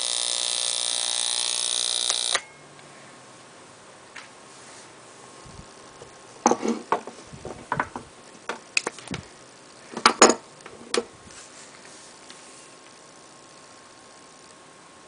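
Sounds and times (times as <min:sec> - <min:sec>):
clicks and clattering knocks: 0:06.5 - 0:08.9.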